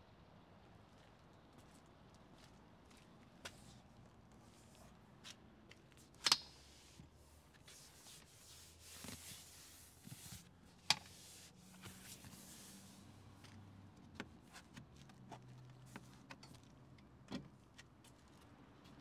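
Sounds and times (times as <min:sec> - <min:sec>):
soft rustling: 0:07.0 - 0:13.6.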